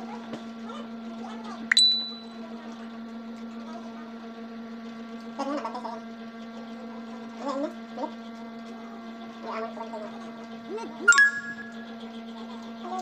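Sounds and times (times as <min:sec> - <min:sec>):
electrical hum: 0:01.4 - 0:02.6, 0:10.6 - 0:13.0.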